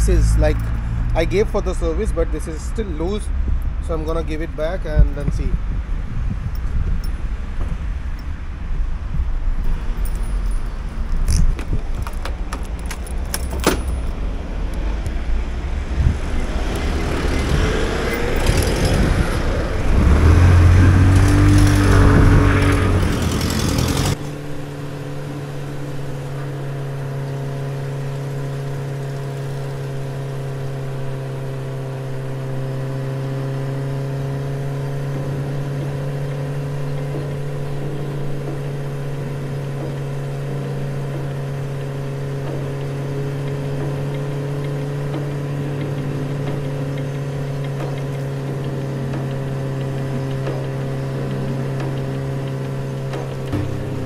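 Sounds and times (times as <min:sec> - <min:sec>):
clicks and rustling: 0:10.0 - 0:15.2
scooter engine revving: 0:11.3 - 0:25.1, 0:42.4 - 0:54.0.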